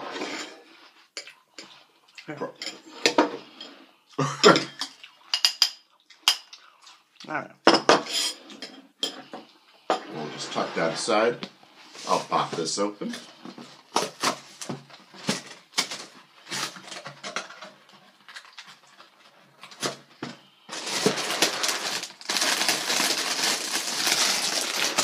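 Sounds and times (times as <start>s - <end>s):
plastic bag crinkling: 20.7s - 25.0s.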